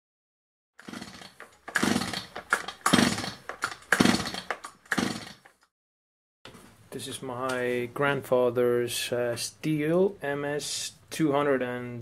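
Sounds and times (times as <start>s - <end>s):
chainsaw bursts: 0.8s - 5.6s.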